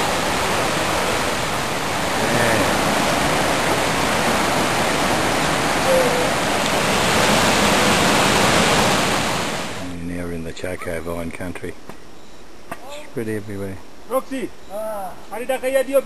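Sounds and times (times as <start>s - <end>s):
stream rushing over rocks: 0.0s - 9.9s.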